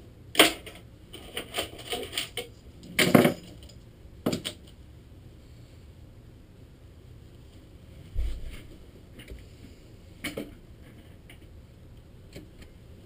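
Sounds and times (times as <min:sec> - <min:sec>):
objects clicking and clattering: 0:00.4 - 0:04.8.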